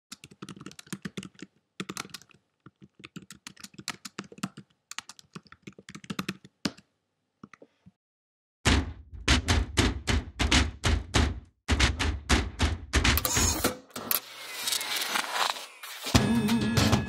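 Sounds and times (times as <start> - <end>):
keyboard typing: 0.1 - 6.9
loud thudding beat: 8.7 - 13.2.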